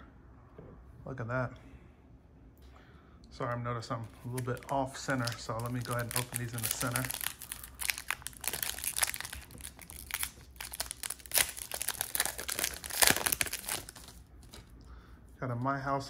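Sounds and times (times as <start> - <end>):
foil wrapper crinkling and tearing: 4.2 - 14.7.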